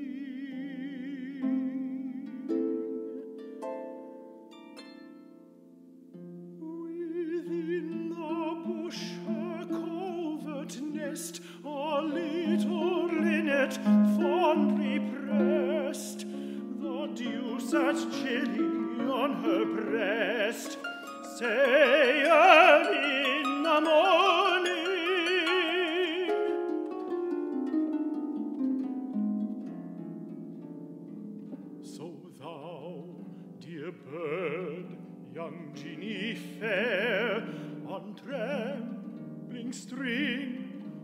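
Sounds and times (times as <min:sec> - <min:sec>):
tenor singing classical: 0:00.0 - 0:30.1, 0:31.4 - 0:41.0
plucked harp: 0:00.0 - 0:41.0.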